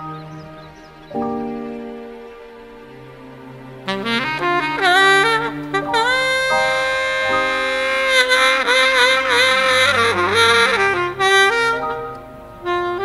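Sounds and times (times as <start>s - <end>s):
saxophone playing slow melody: 0.0s - 13.0s.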